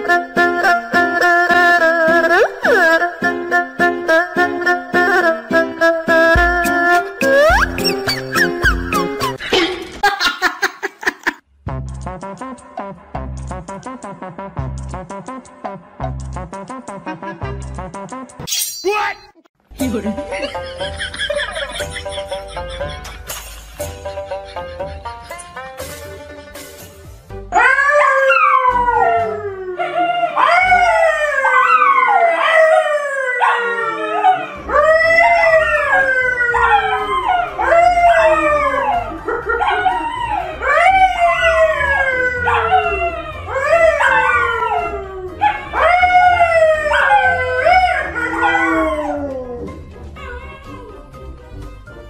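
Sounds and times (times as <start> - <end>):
dog howling: 27.6 - 51.1
man howling: 33.4 - 51.0.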